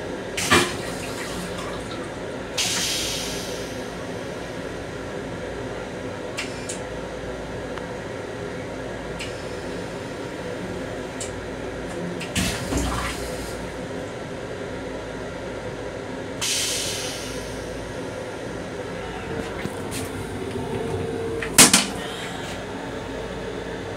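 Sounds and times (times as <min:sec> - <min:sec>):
train rumble: 0:00.0 - 0:23.9
toilet flushing: 0:00.1 - 0:04.7, 0:09.0 - 0:14.0, 0:16.4 - 0:23.9
hiss: 0:02.6 - 0:04.0, 0:16.4 - 0:17.8.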